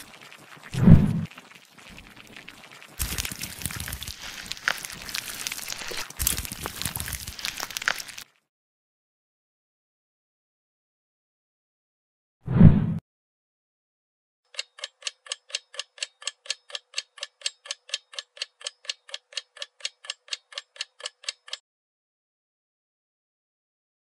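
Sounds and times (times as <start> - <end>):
clock ticking: 14.5 - 21.6.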